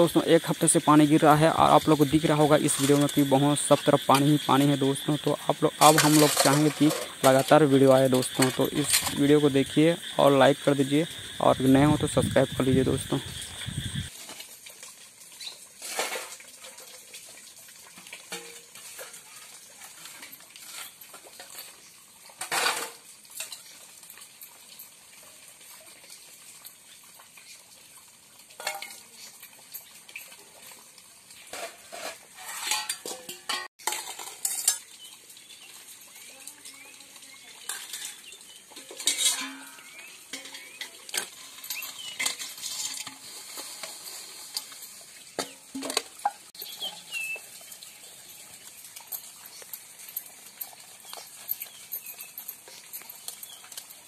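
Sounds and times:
scrubbing pots: 0.0 - 27.4, 28.0 - 54.0
metal dishes clanking: 1.6 - 10.2, 18.3 - 19.2, 31.5 - 35.0, 37.7 - 43.2.

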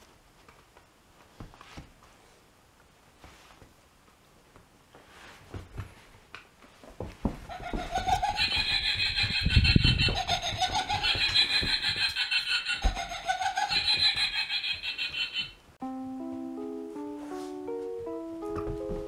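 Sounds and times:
toy cackling laugh: 7.5 - 15.6.

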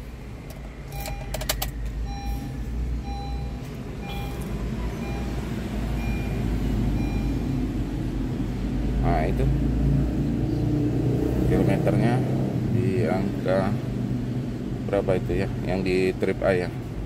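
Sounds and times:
car warning chime beeping: 0.8 - 8.0.

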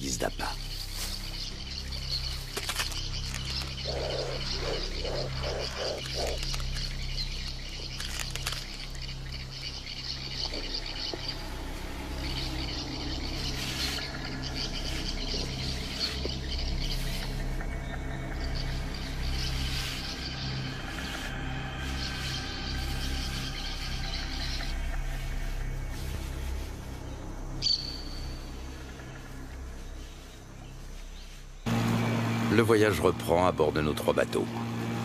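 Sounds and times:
low hum: 0.0 - 35.0
low pulsing calls: 0.0 - 35.0
chorus of frog-like calls: 2.8 - 8.9.

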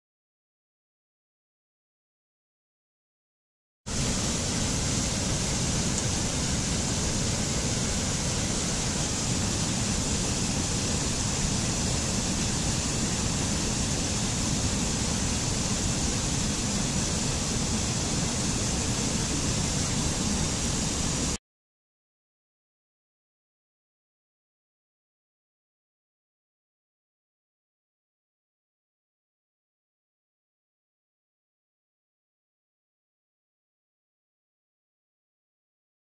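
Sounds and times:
stream rushing over boulders: 3.9 - 21.4.

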